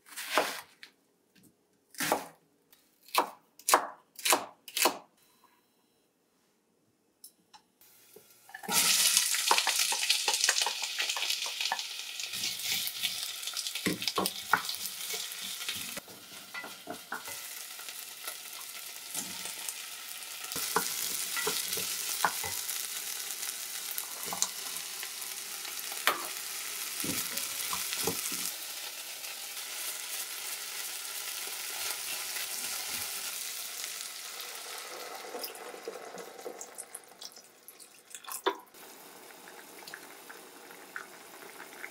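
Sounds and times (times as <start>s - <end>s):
vegetables sizzling in oil: 7.9s - 36.8s
water pouring into pot: 33.9s - 41.9s.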